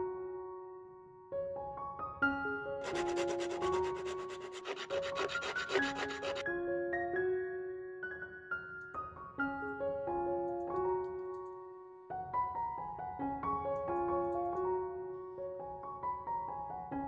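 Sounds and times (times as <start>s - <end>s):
soft piano music: 0.0s - 17.0s
fast rubbing strokes: 2.8s - 6.4s.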